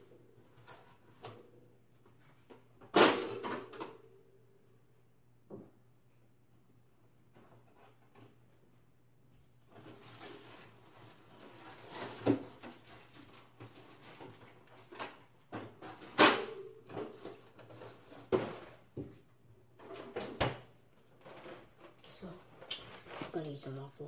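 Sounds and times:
frozen packages knocking and rustling: 9.7s - 23.6s.

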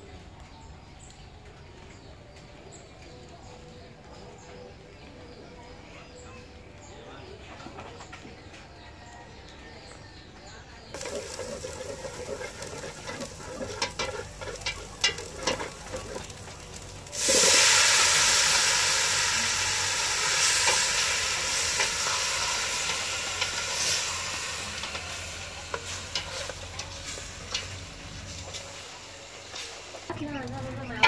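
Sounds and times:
meat sizzling in hot oil: 10.9s - 31.0s
chopsticks tapping a pot: 11.0s - 16.8s.

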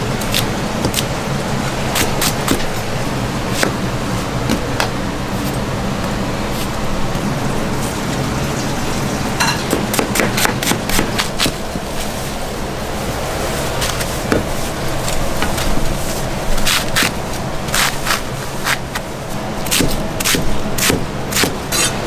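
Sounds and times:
steady low hum: 0.0s - 22.0s
knife chopping on plastic board: 9.7s - 11.6s.

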